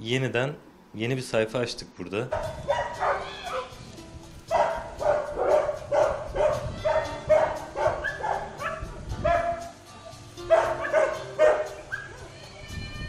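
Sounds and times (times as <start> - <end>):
dogs barking and yelping: 2.3 - 3.8, 4.4 - 9.8, 10.4 - 12.3.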